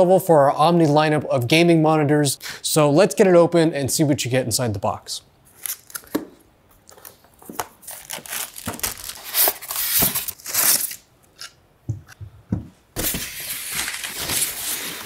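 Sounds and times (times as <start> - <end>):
packaging crinkling: 6.9 - 11.1, 13.0 - 15.0.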